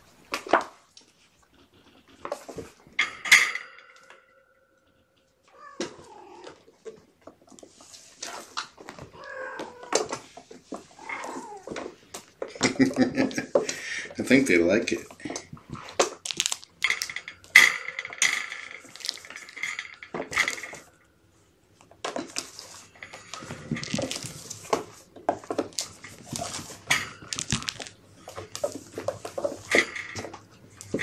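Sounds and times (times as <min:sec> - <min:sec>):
claws scrabbling on plastic: 0:14.9 - 0:20.9, 0:21.8 - 0:31.0.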